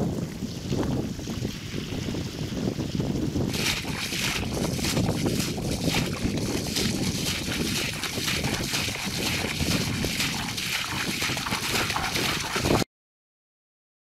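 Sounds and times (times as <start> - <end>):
bucket scooping muddy water: 3.5 - 12.9
thrown water slapping: 3.5 - 12.9.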